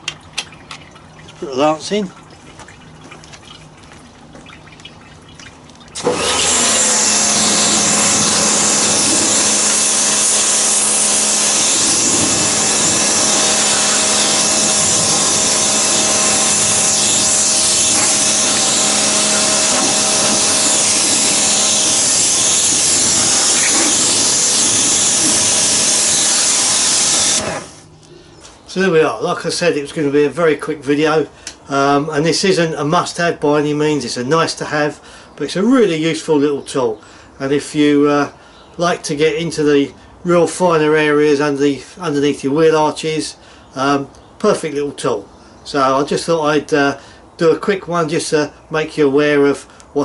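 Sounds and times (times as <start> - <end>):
pressure washer pump humming: 0.0 - 27.9
water jet hissing: 4.3 - 27.9.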